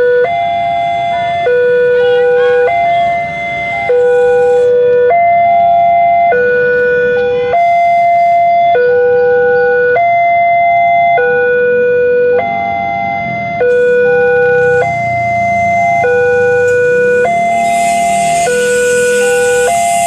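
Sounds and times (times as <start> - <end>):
two-tone level crossing alarm: 0.0 - 20.0.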